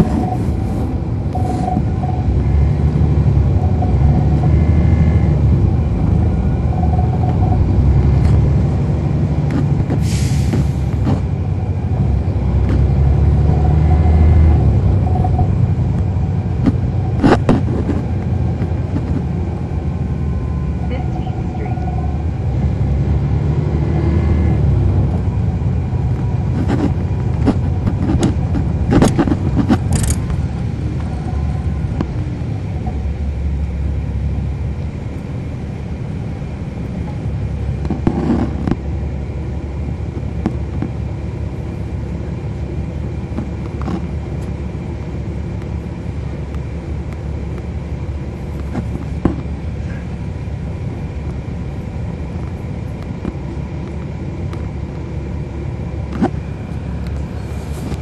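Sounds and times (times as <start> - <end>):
diesel bus engine rumbling: 0.0 - 58.0
sharp clicks or rattles: 27.9 - 30.4.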